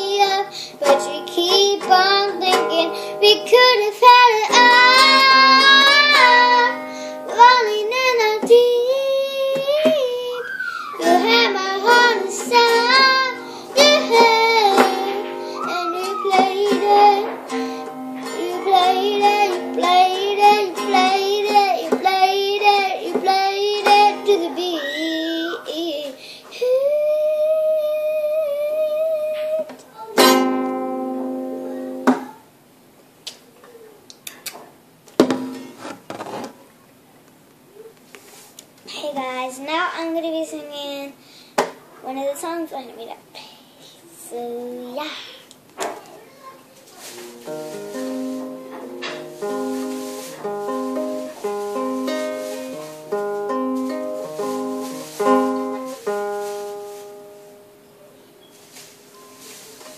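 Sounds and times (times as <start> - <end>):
child singing held note: 0.0 - 30.2
toy guitar strum: 0.1 - 7.6, 11.0 - 24.7, 30.2 - 32.3.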